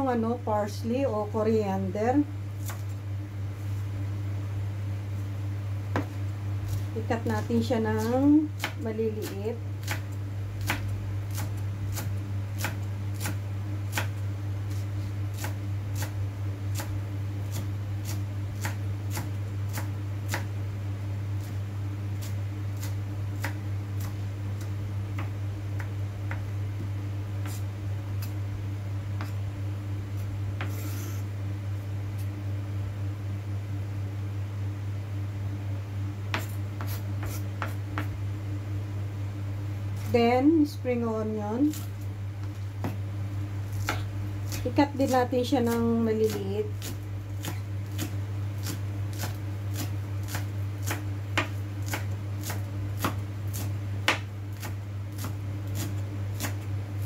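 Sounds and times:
steady low hum: 0.0 - 57.0
knife chopping on a cutting board: 2.6 - 2.9, 5.9 - 20.5, 22.2 - 28.4, 29.2 - 29.4, 30.2 - 31.2, 36.3 - 38.2, 41.6 - 43.0, 43.7 - 56.7.

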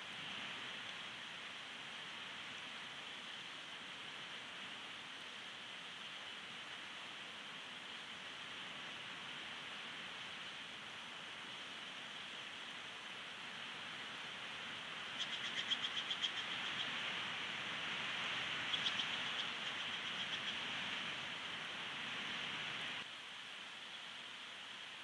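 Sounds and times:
rain hiss: 0.0 - 25.0
eagle chirping: 15.2 - 17.0, 18.6 - 20.7.

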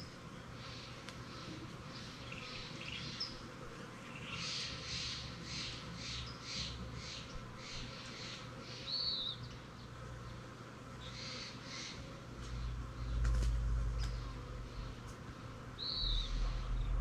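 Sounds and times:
harsh scolding bird calls: 11.0 - 15.0, 15.8 - 17.0.

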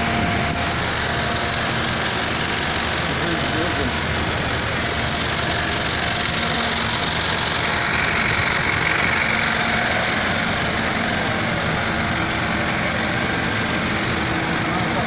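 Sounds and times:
vehicle engine idling: 0.0 - 15.0.

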